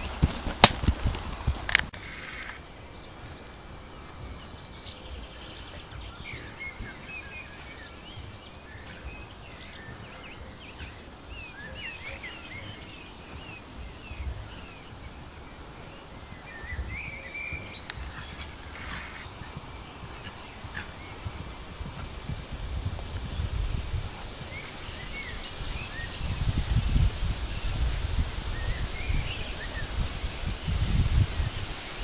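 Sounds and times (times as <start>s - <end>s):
small birds chirping and twittering: 1.9s - 32.0s
steady low rumble: 13.7s - 29.3s.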